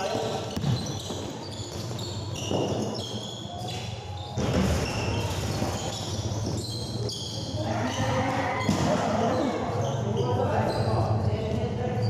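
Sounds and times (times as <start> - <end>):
sneakers squeaking on floor: 0.0 - 12.0
basketball bouncing: 0.5 - 2.9.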